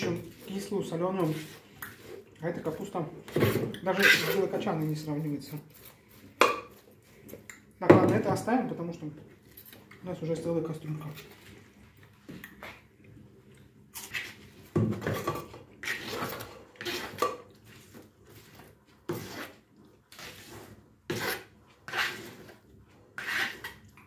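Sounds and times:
blade scraping across board: 0:19.1 - 0:22.6, 0:23.2 - 0:23.8.

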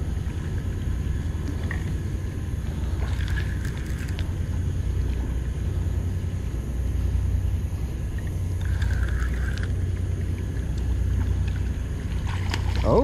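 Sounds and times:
low rumble: 0:00.0 - 0:13.0
fishing reel whirring: 0:08.1 - 0:10.7.

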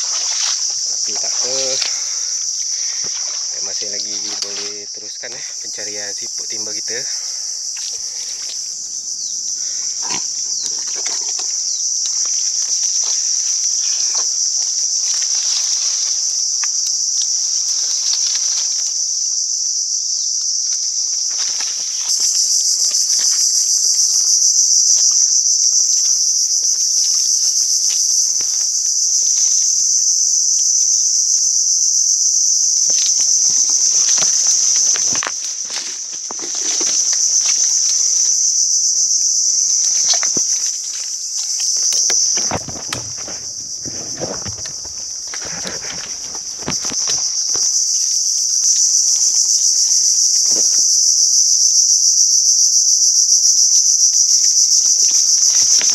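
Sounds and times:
footsteps through mud: 0:00.0 - 0:04.9, 0:06.6 - 0:08.9, 0:32.8 - 0:38.6, 0:39.2 - 0:48.0
insects buzzing drone: 0:00.0 - 0:55.9
rustling undergrowth: 0:00.0 - 0:55.9.

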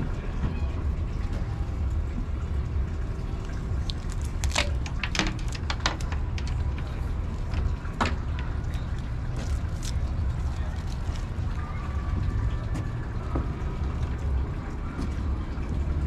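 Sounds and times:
steady low rumble: 0:00.0 - 0:16.0
sharp knocks and clicks: 0:04.5 - 0:08.6.

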